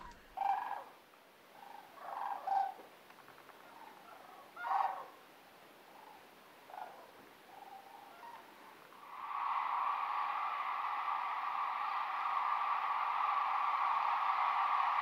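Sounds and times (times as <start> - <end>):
cranes calling: 0.0 - 5.2, 5.9 - 8.8.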